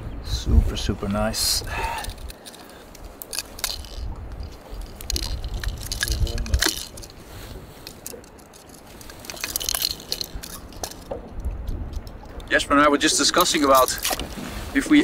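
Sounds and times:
wind rumble on microphone: 0.0 - 15.0
metal pliers and hooks clinking: 1.8 - 12.5, 13.3 - 14.2.

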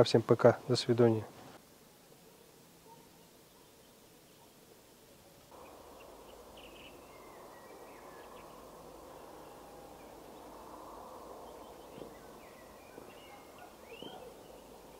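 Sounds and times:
birds chirping: 2.5 - 14.9
steady rushing noise: 5.5 - 14.9.

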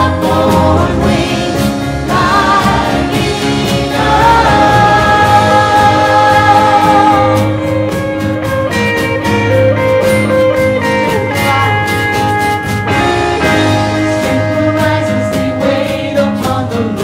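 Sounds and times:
band playing gospel song: 0.0 - 17.0.

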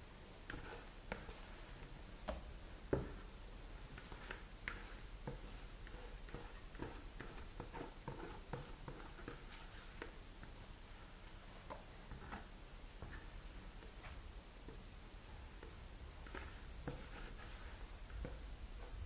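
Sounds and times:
spatula scraping plastic bowl: 0.5 - 1.6, 3.9 - 10.2, 15.6 - 19.0.

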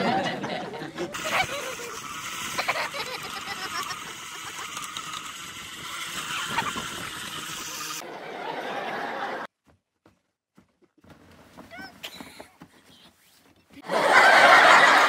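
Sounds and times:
ice auger motor running: 1.0 - 8.0.

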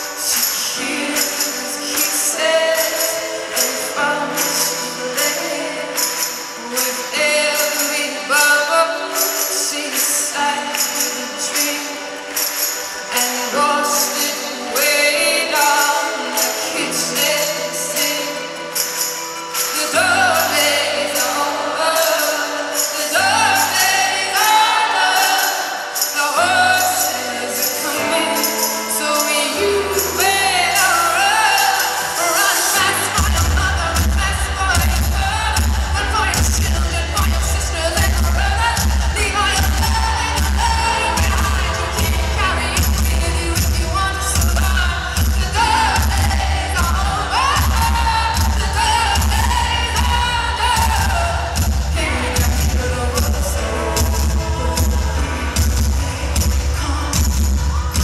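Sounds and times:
woman singing: 0.0 - 58.0
high percussion beat: 15.5 - 58.0.

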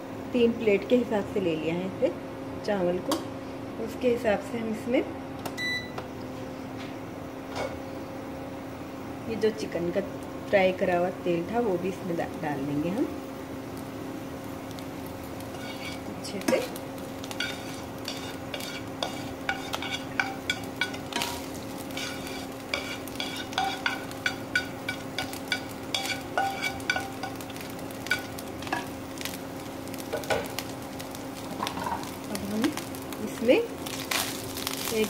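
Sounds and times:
hot oil sizzling: 9.0 - 35.0
spatula scraping pan: 15.4 - 29.0.

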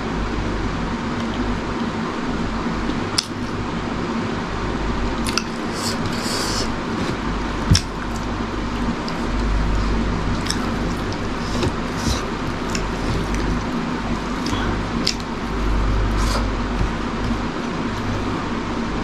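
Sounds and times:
steady background noise: 0.0 - 19.0
chewing: 5.2 - 18.1.

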